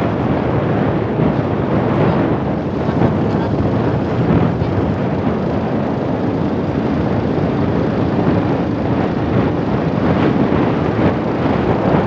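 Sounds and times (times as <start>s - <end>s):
motorcycle engine running: 0.0s - 12.0s
wind rushing over microphone: 0.0s - 12.0s.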